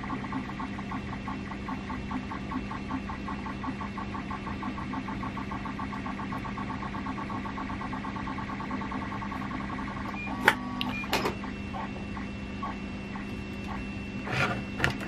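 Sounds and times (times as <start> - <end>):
machine humming with pulsing tone: 0.0 - 15.0.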